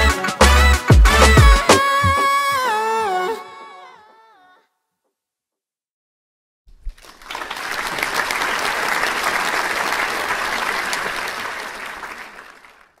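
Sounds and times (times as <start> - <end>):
applause: 6.8 - 13.0.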